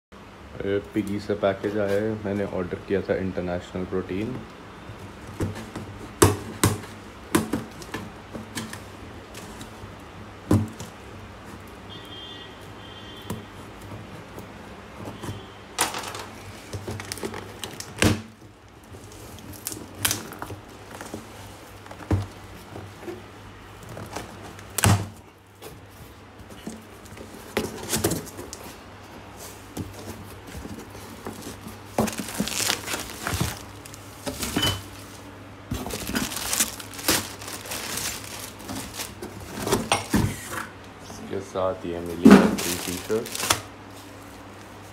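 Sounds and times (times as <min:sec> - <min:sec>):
cardboard flaps crinkling: 0:05.0 - 0:40.5, 0:41.1 - 0:44.9
tape tearing: 0:30.8 - 0:34.6, 0:35.7 - 0:40.0, 0:42.2 - 0:43.7.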